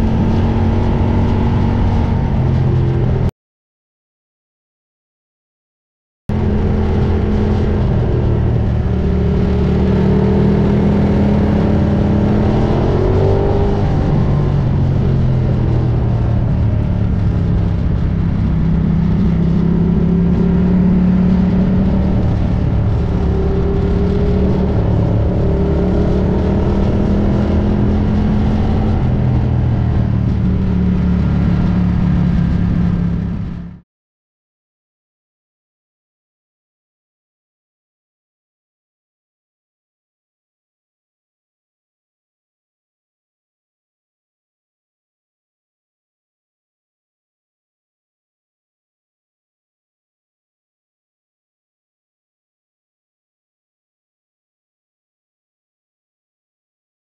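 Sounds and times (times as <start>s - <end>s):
motorcycle engine running: 6.3s - 33.8s.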